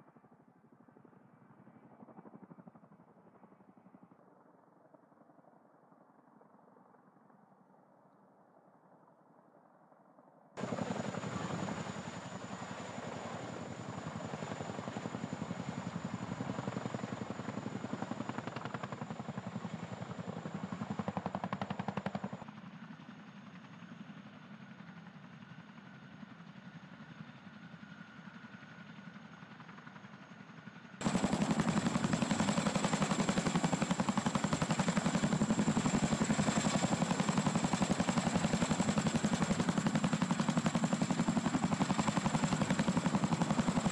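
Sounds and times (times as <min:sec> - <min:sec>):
helicopter rotor chop: 0:10.6 - 0:22.4, 0:31.0 - 0:43.9
helicopter high whine: 0:10.6 - 0:25.8, 0:27.6 - 0:43.9.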